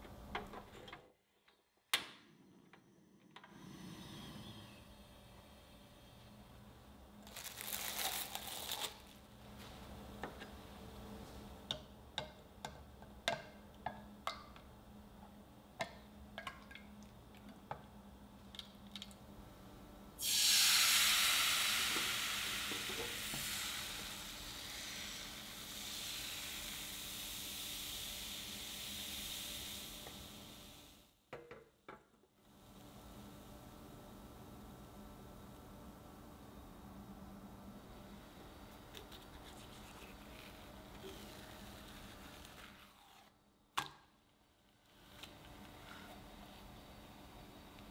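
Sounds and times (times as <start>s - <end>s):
batter sizzling in frying pan: 20.2s - 31.0s.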